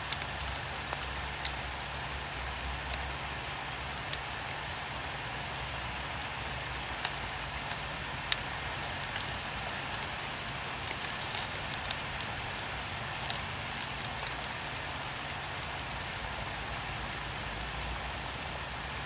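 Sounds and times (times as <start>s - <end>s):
steady rain: 0.0s - 19.0s.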